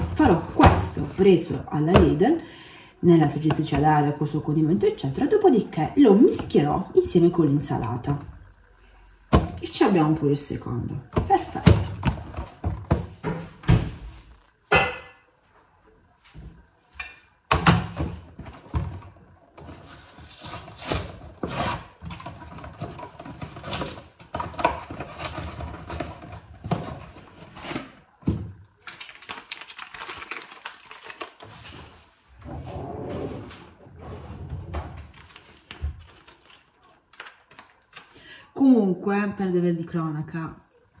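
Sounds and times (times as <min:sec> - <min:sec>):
cardboard and plastic rustling: 0:18.2 - 0:32.3, 0:34.5 - 0:38.2.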